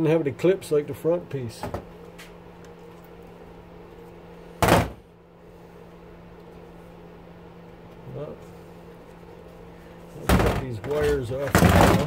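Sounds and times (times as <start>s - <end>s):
electrical hum: 0.0s - 12.0s
metal and plastic parts clattering: 10.3s - 12.0s.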